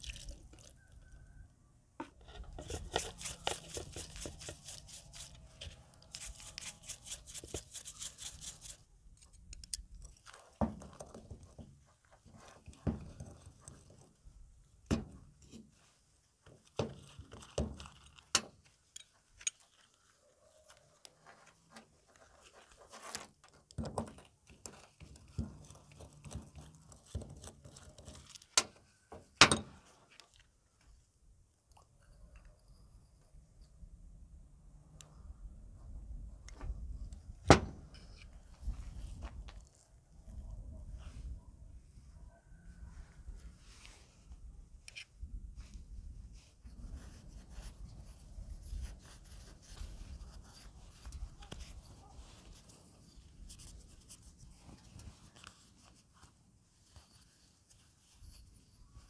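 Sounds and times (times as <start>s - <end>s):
scratchy rubbing strokes: 2.2s - 8.9s, 46.8s - 58.8s.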